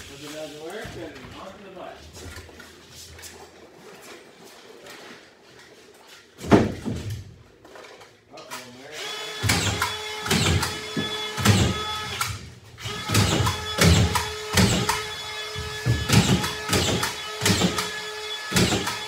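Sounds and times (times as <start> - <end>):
drywall sheet knocking ceiling joists: 6.2 - 7.9, 9.4 - 19.0.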